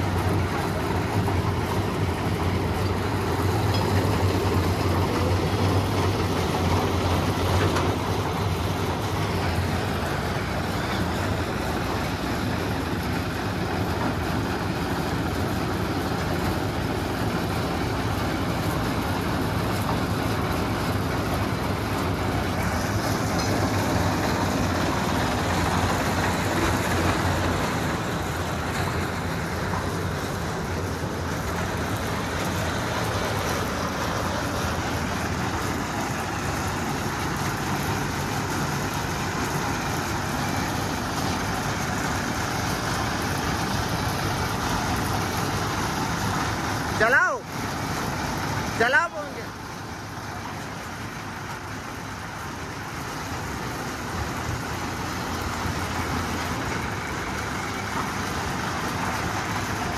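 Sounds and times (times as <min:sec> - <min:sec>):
diesel engine running: 0:00.0 - 0:59.9.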